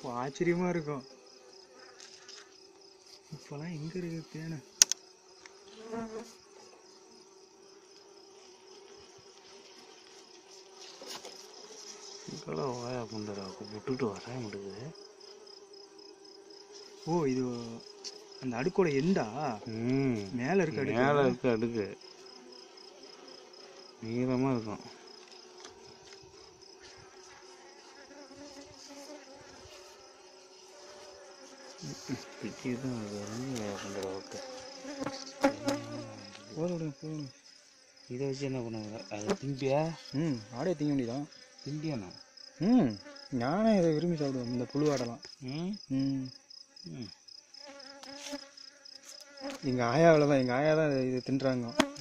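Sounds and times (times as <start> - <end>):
bees buzzing: 0.0 - 52.0
person murmuring: 19.6 - 20.4, 35.5 - 36.4, 40.2 - 40.5, 45.4 - 47.2.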